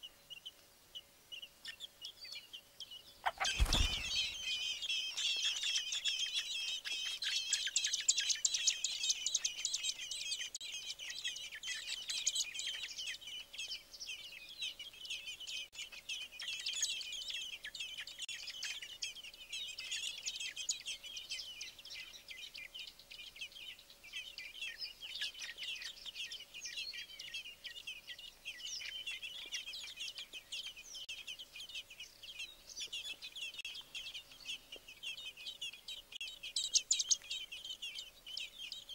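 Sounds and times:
nestlings cheeping: 3.2 - 4.9.

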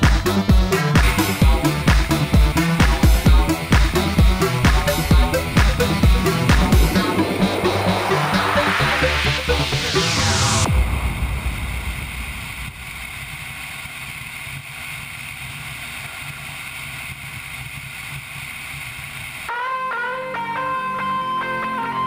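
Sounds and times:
guitar music: 0.0 - 10.1, 19.5 - 22.0
motorcycle engine running: 0.0 - 19.5.

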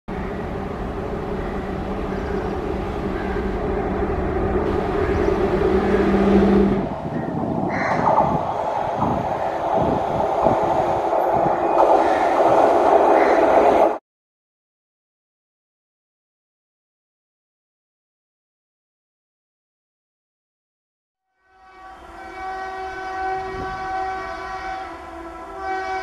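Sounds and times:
electric locomotive two-note hum: 0.1 - 10.0, 21.3 - 26.0
train rumble: 0.1 - 14.0, 21.8 - 26.0.

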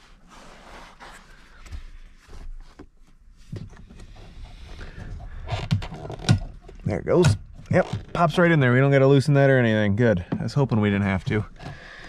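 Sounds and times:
rustling of plastic and wiring: 0.0 - 8.5.

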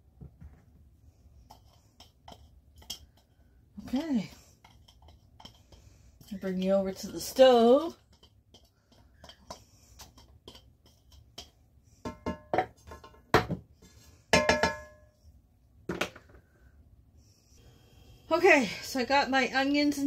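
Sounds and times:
glass and spatula clinking on a pan: 14.3 - 15.0.

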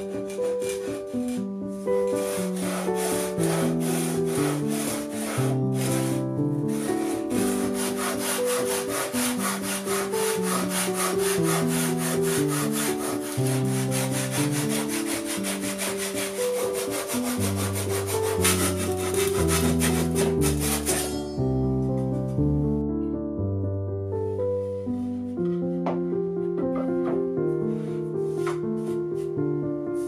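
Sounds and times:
handsaw cutting wood: 0.0 - 1.4, 2.0 - 21.2
piano background music: 0.0 - 30.0.

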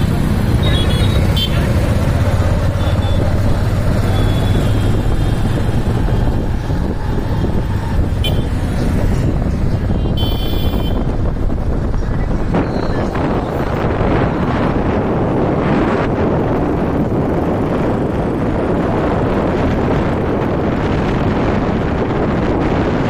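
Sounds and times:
vehicle engine and road rumble: 0.0 - 23.0
car horn: 0.6 - 1.8, 2.7 - 3.3, 4.0 - 5.1, 8.1 - 8.7, 9.9 - 11.2.

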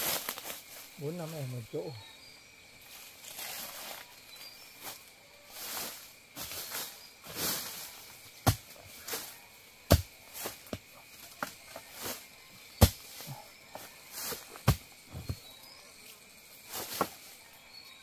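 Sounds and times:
rustling leaves and undergrowth: 0.0 - 18.0
blade chopping bamboo: 9.9 - 11.5, 12.8 - 13.2, 14.3 - 15.4.

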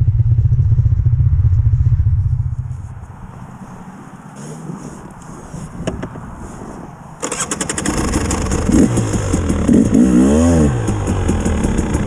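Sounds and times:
motorcycle engine revving: 7.2 - 12.0.

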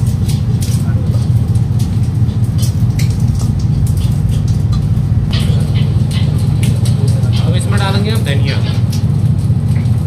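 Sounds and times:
low machine hum: 0.0 - 10.0.

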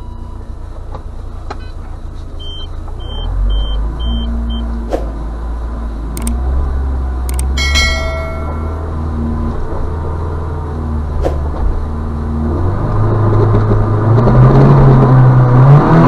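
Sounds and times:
bell chime: 7.3 - 9.0.

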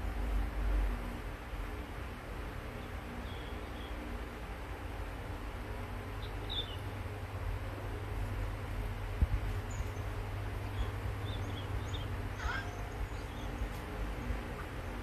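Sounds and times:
steady low rumble: 0.0 - 15.0
high bird chirps: 10.7 - 13.7
falling call: 12.4 - 12.9.

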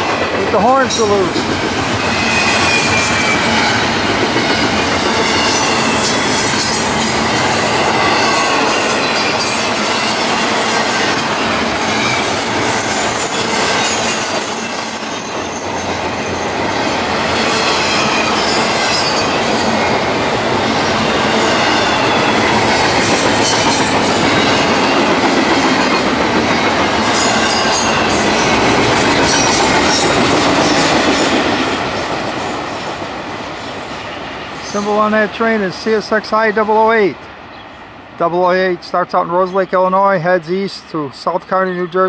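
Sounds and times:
train wheels rumbling on rail: 0.0 - 41.4
high wheel squeal: 2.0 - 20.0.

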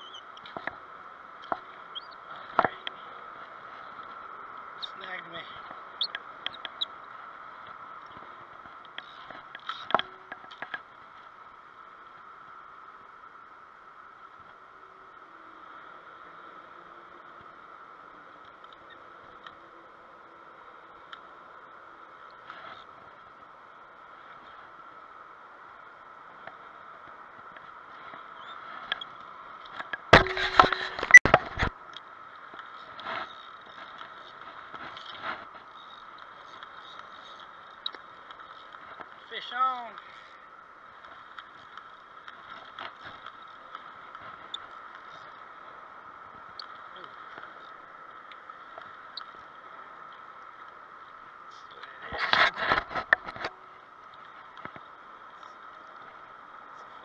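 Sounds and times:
steady hum: 0.0 - 57.0
camera knocking and scraping on rocks: 29.7 - 31.8, 52.1 - 53.5.

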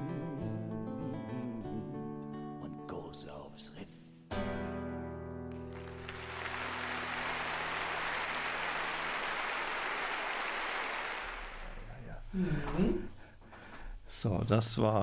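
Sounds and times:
audience applause: 5.5 - 11.9.

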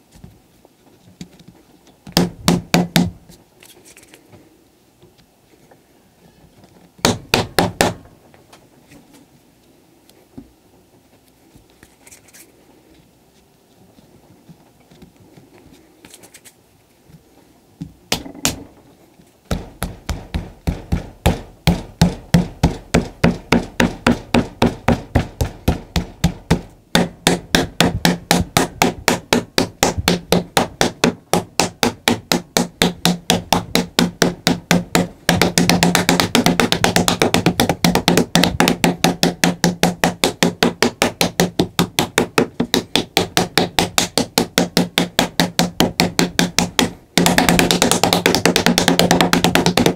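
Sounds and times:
clay slab being beaten: 2.1 - 3.2, 7.0 - 8.0, 18.1 - 18.7, 19.5 - 49.9.

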